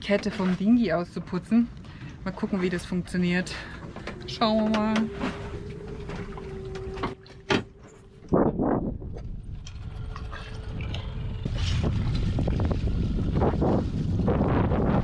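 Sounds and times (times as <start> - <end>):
wind buffeting microphone: 3.8 - 15.0.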